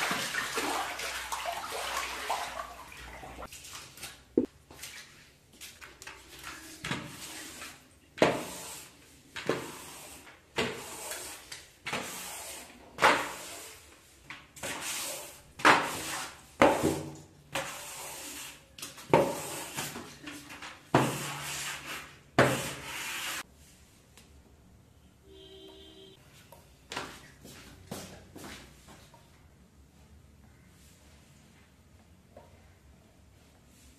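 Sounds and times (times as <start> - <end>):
brush scrubbing wet floor: 0.0 - 23.5.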